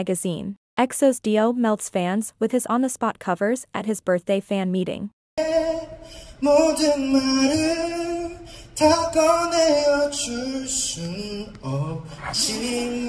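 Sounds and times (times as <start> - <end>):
man singing ballad: 5.4 - 13.0
singer breathing: 5.9 - 6.4, 8.4 - 8.8.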